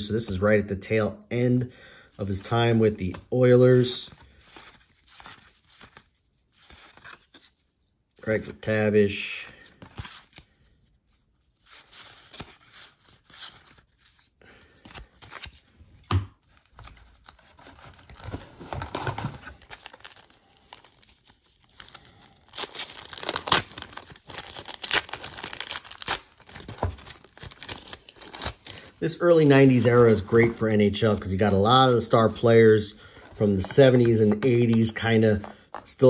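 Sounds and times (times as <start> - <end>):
wrapper rustling and tearing: 16.5 - 30.4.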